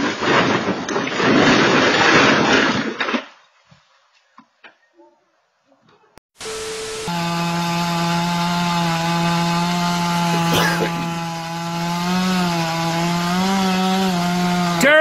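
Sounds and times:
chainsaw cutting tree: 6.4 - 15.0.

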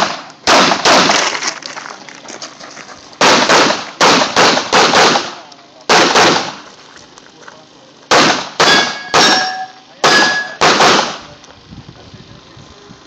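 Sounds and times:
pistol shots: 0.0 - 1.4, 3.2 - 6.6, 8.1 - 11.3
steel targets ringing: 8.6 - 10.7.

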